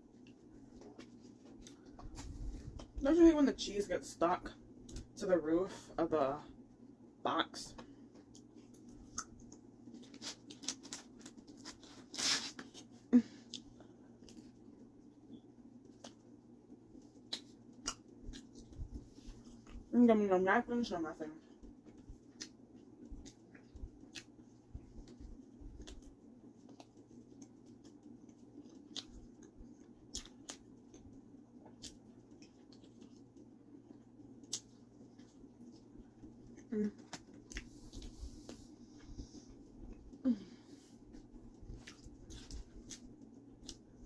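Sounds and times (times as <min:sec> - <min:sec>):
chewing pizza: 0:08.1 - 0:19.9, 0:21.5 - 0:44.0
tearing rustle of pizza slice: 0:09.9 - 0:13.0.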